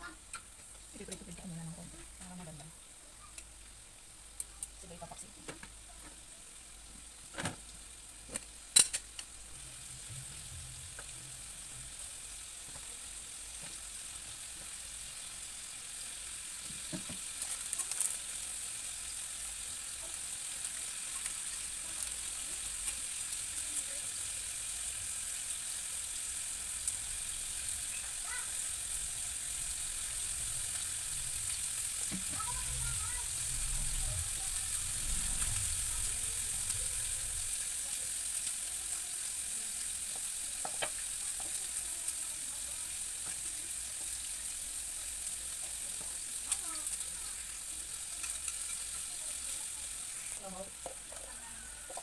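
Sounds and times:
meat sizzling in a pan: 0:00.0 - 0:52.0.

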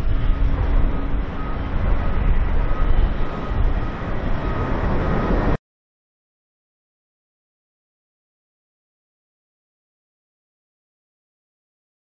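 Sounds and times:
jet engines at takeoff: 0:00.0 - 0:05.6.

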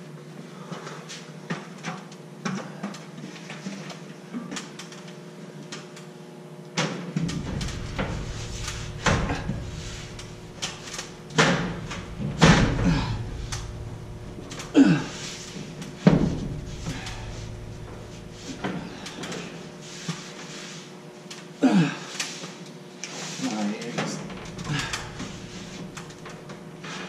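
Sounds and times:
steady low hum: 0:07.1 - 0:22.1, 0:23.1 - 0:27.0
drywall knocks and scrapes: 0:07.2 - 0:14.5.

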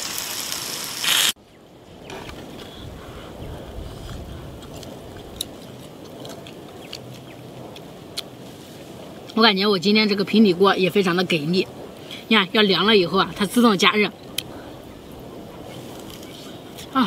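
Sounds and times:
dumplings sizzling in a pan: 0:00.0 - 0:01.4.

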